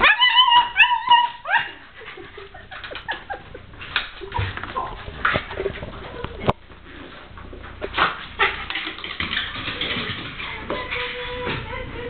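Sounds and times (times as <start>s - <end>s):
small dog whining and yipping: 0.0s - 1.8s.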